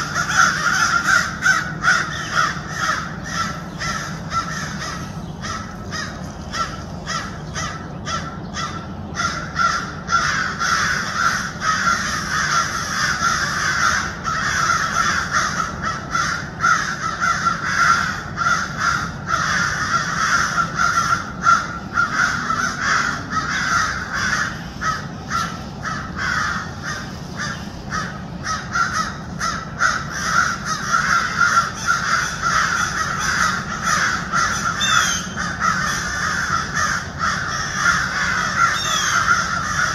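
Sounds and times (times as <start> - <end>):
harsh animal alarm calls: 0.0 - 39.9.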